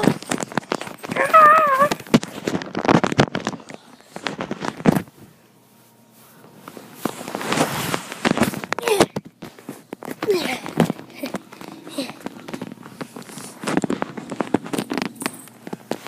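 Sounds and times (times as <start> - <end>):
dogs scuffling: 0.0 - 5.2, 9.4 - 16.0
dog whining: 1.0 - 2.0.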